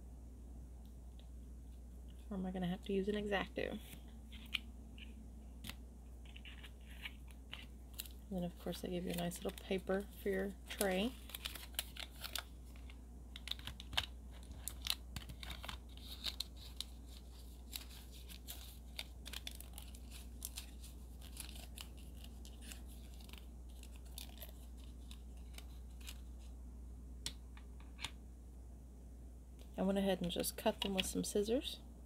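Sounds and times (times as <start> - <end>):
paper crinkling being folded: 3.0 - 26.6, 30.2 - 31.2.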